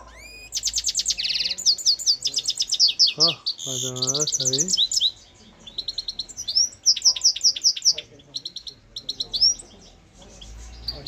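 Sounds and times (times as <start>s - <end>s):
goldfinch singing: 0.0s - 11.0s.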